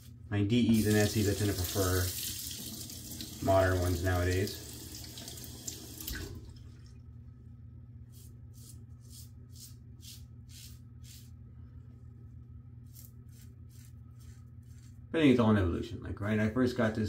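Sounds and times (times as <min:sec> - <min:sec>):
steady low hum: 0:06.2 - 0:17.0
razor scraping stubble: 0:12.8 - 0:15.1.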